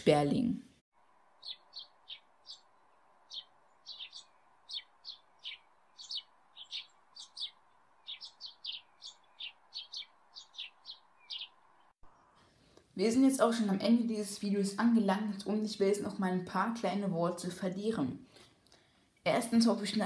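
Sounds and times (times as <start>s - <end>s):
sparrow chirping: 1.3s - 12.4s.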